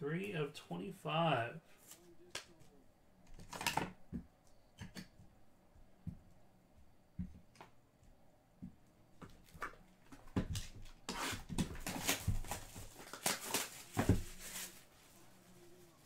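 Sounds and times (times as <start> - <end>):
plastic wrapper crinkling and tearing: 11.8 - 14.9.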